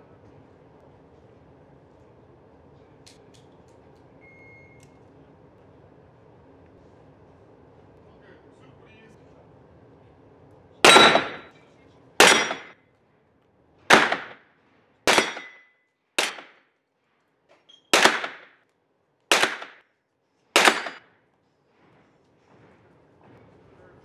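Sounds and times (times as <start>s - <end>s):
pistol shots with echo: 10.9s - 11.5s, 12.2s - 12.7s, 13.9s - 14.4s, 15.1s - 15.6s, 16.2s - 16.6s, 18.0s - 18.5s, 19.3s - 19.8s, 20.6s - 21.0s.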